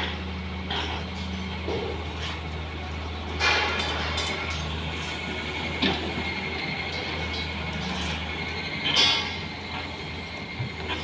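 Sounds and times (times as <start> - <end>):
excavator diesel engine under load: 0.0 - 11.0.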